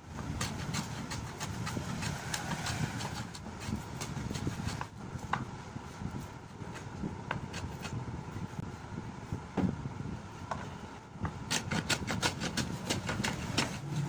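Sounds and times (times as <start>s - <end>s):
hand plane scraping wood: 0.4s - 4.9s.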